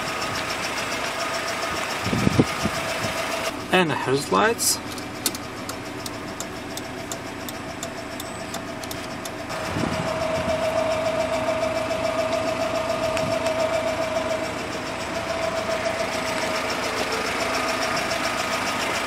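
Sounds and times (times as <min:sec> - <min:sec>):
truck engine idling: 0:00.0 - 0:19.0
light regular ticking: 0:04.8 - 0:09.5.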